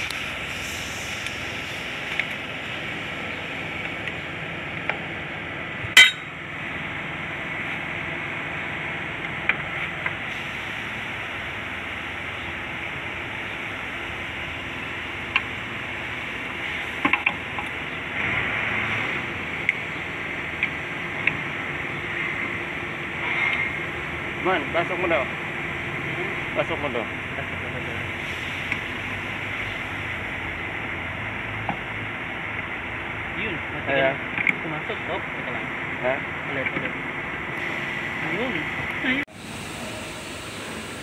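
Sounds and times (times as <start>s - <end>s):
loud metal clank: 5.9s - 6.4s
metal clinks and knocks: 6.0s - 6.3s
steady background hiss: 37.6s - 41.0s.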